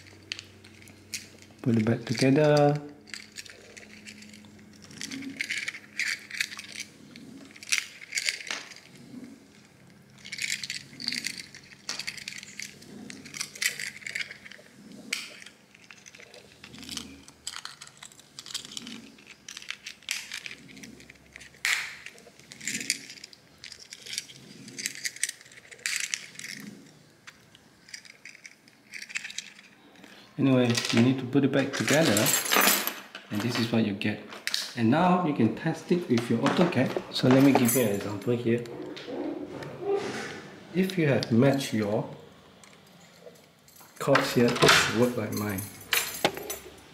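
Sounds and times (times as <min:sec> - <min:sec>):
key ring clinking: 0:00.0 - 0:09.2, 0:10.1 - 0:26.8, 0:36.2 - 0:38.4, 0:42.6 - 0:46.9.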